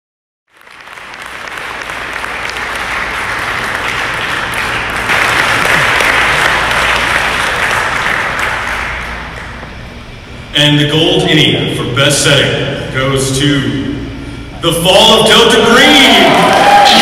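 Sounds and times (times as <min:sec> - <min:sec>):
audience applauding: 0:00.5 - 0:09.6, 0:16.1 - 0:17.0.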